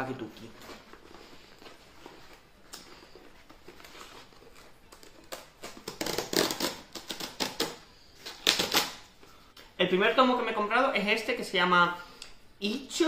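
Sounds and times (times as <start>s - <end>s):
cardboard envelope rustling: 0.4s - 7.7s
cardboard ripping and crinkling: 0.4s - 9.0s.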